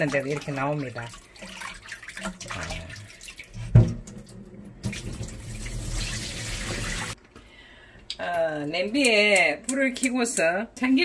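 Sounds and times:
water sloshing and dripping: 0.0 - 7.2.

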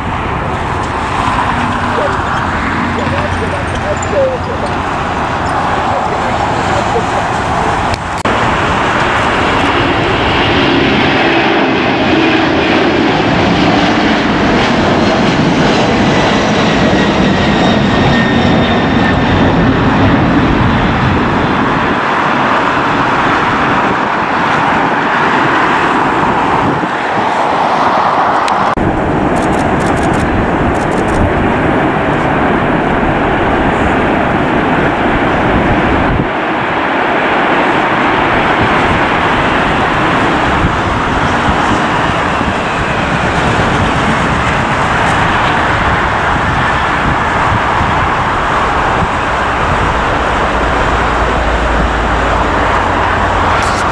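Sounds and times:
jet engines running loudly: 0.0 - 53.9.

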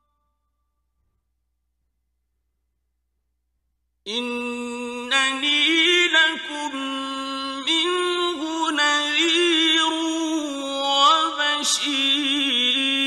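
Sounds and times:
person chanting religious recitation: 4.1 - 13.0.

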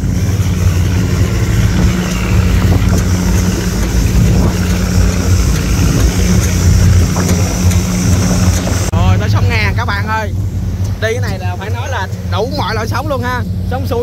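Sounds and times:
boat engine running: 0.0 - 14.0
hiss of water and wind: 0.0 - 14.0.

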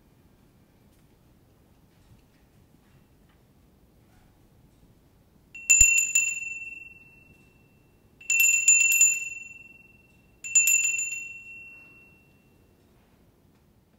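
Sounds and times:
small high-pitched bell ringing: 5.6 - 12.8.

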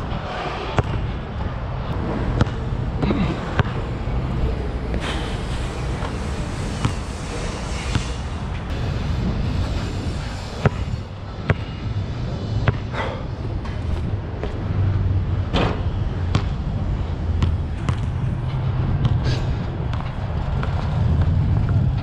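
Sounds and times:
city traffic rumble: 0.0 - 22.0
basketball bouncing on asphalt: 0.7 - 1.0, 2.3 - 4.0, 6.7 - 7.2, 10.6 - 11.9, 12.6 - 12.9, 16.3 - 16.6, 17.3 - 18.2, 19.9 - 21.8.

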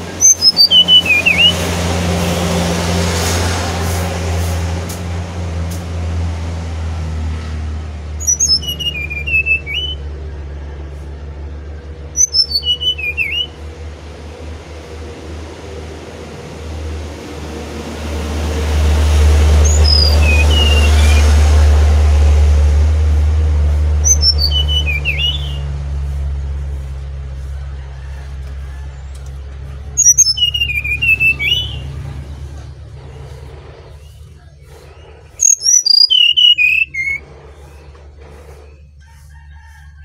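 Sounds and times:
bird whistled song: 0.0 - 1.6, 8.2 - 10.1, 12.0 - 13.6, 19.6 - 21.4, 24.0 - 25.7, 29.9 - 32.1, 33.9 - 38.9
steady low rumble: 0.0 - 40.0.

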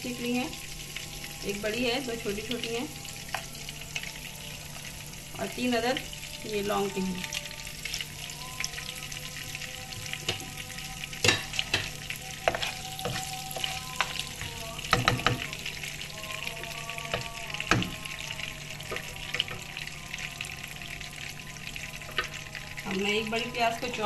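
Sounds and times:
spices sizzling in hot oil: 0.0 - 24.0
wooden spatula knocking pan: 14.9 - 15.5.

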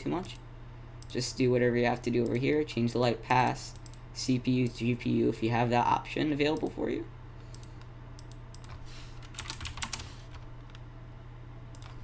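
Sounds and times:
low steady hum: 0.0 - 12.0
computer keyboard keys clicking: 7.6 - 10.8, 11.8 - 12.0.

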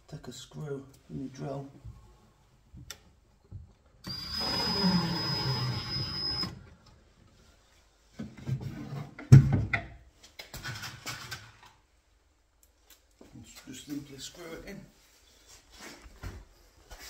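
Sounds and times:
cordless drill whining: 4.0 - 6.6.

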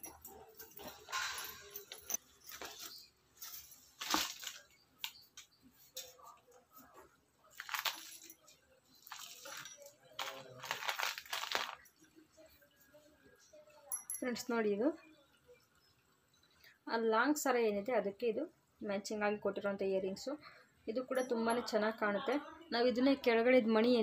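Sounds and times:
jewellery rustling and clinking: 0.0 - 14.8, 20.9 - 22.4.

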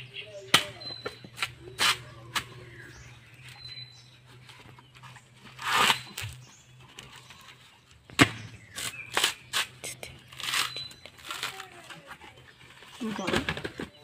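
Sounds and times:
coconut husk tearing: 4.9 - 7.6, 8.2 - 12.4.

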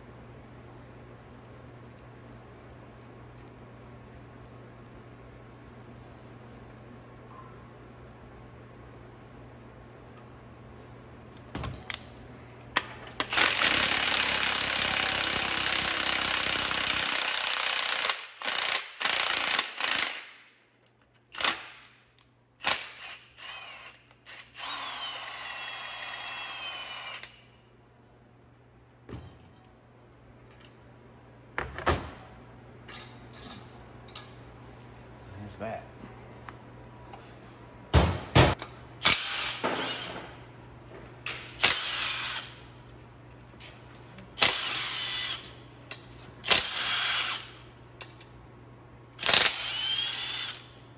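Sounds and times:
impact wrench spinning whine: 13.2 - 20.2, 22.6 - 27.6, 39.0 - 40.4, 41.3 - 42.8, 44.4 - 45.8, 46.4 - 47.8, 49.1 - 50.9.

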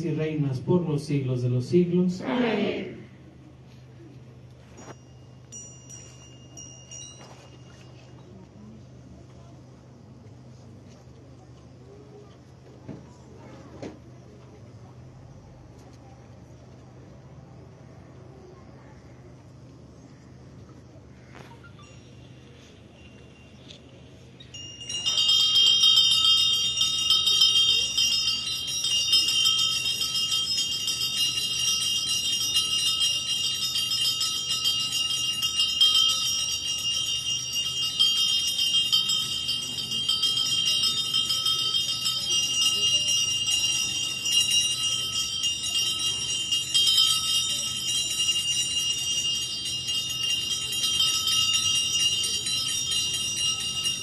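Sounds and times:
altar bells ringing: 4.8 - 8.4, 21.6 - 54.0.

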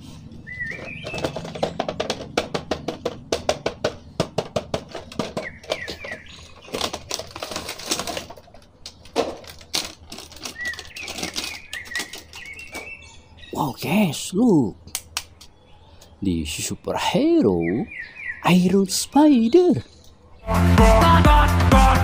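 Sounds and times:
faint bird chirps: 0.0 - 1.6, 9.0 - 20.5
plastic packaging crackling: 4.9 - 13.0.

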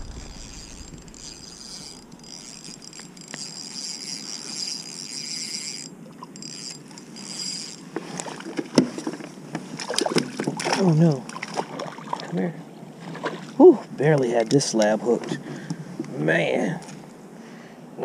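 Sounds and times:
fishing reel whirring: 0.0 - 8.6.

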